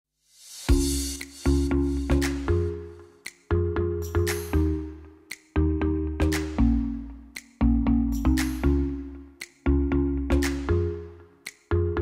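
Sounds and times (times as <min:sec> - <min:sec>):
light percussive clicks: 0:05.3 - 0:05.6, 0:11.4 - 0:11.7
deep bass notes: 0:05.6 - 0:11.1.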